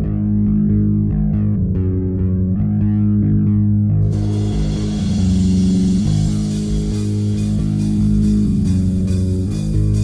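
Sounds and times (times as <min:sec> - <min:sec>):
distorted guitar and bass riff: 0:00.0 - 0:10.0
drum beat with cymbal hits: 0:04.1 - 0:10.0.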